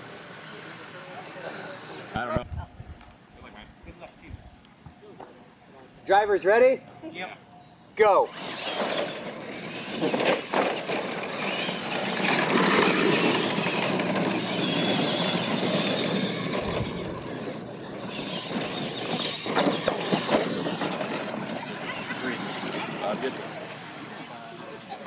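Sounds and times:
toy truck motors whining: 8.3s - 24.1s
tyres rushing on dirt: 8.3s - 25.0s.

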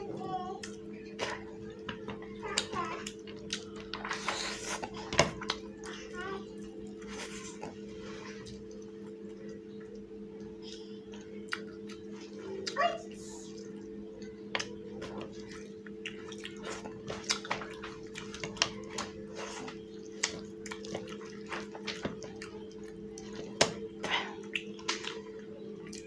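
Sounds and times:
low hum: 0.0s - 26.0s
wet eating smacks and squishes: 14.6s - 22.6s, 24.4s - 25.3s.

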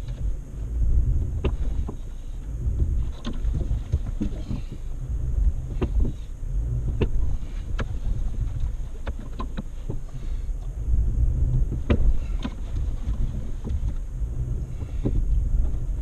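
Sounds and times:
knocks and rattles over bumps: 0.0s - 16.0s
vehicle engine rumble: 0.0s - 16.0s
wind buffeting microphone: 0.0s - 16.0s.

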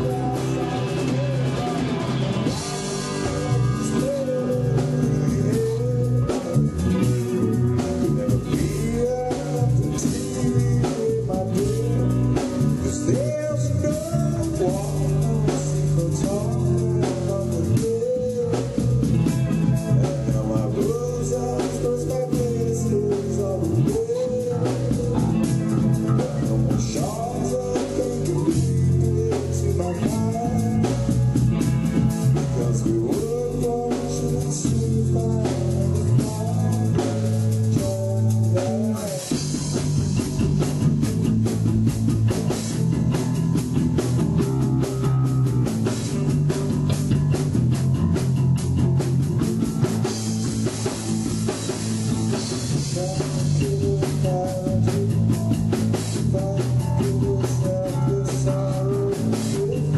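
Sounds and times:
drum kit: 0.0s - 59.9s
electric bass: 0.0s - 59.9s
electric guitar: 0.0s - 59.9s.

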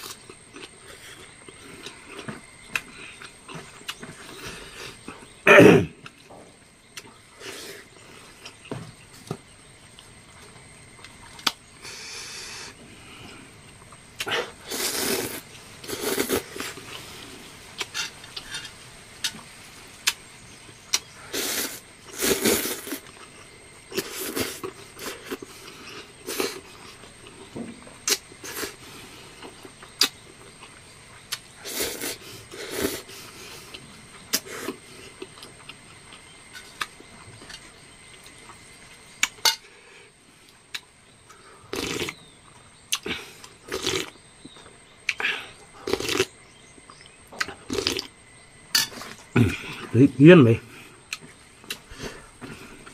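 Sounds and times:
person slurping noodles: 14.2s - 16.8s, 21.3s - 23.1s, 31.6s - 33.1s, 41.7s - 42.1s, 43.7s - 44.1s, 45.8s - 46.3s, 47.7s - 48.1s.

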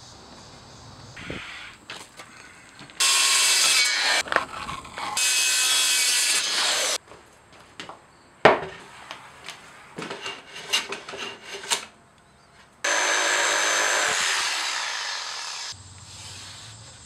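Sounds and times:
circular saw cutting plywood: 3.0s - 7.0s, 12.8s - 15.8s.

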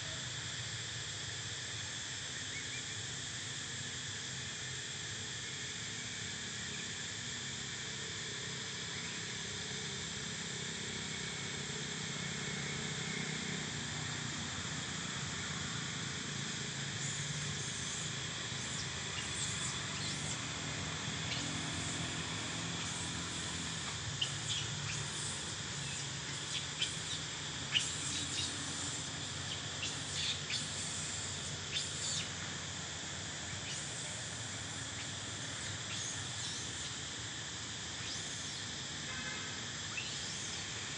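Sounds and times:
insects chirring: 0.0s - 40.9s.

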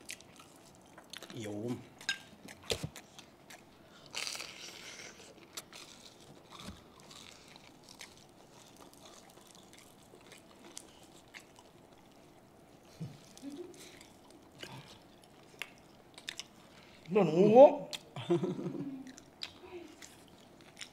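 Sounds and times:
crunching and chewing crispy food: 0.0s - 1.8s, 2.4s - 17.1s, 19.0s - 20.9s.

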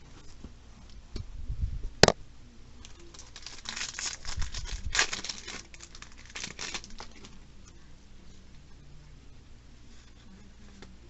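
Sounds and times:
foil pack tearing and crinkling: 3.0s - 7.3s.

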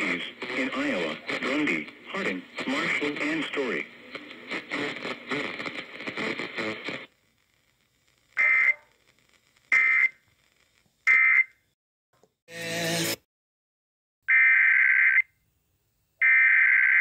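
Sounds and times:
voice on radio: 0.0s - 7.1s
screechy data bursts: 8.3s - 11.5s.

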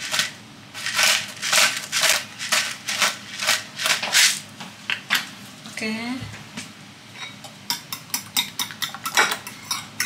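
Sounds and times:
pepper mill grinding: 0.0s - 4.4s.

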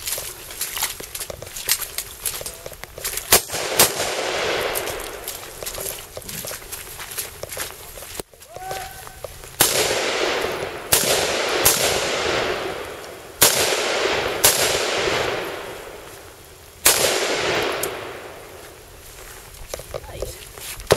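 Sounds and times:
rifle shots with echo: 3.3s - 5.4s, 9.6s - 16.0s, 16.8s - 18.4s.

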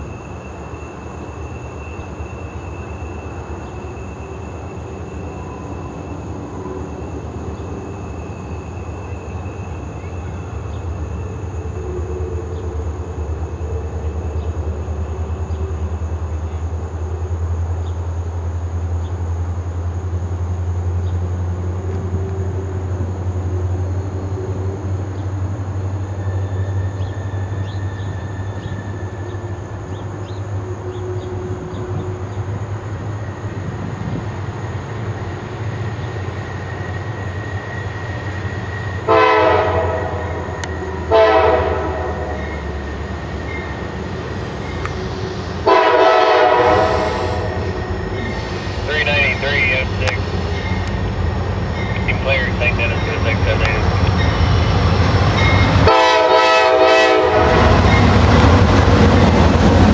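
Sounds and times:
diesel locomotives rumbling: 0.0s - 59.9s
locomotive air horn blasts: 39.0s - 42.4s, 45.6s - 47.6s, 55.8s - 57.8s.

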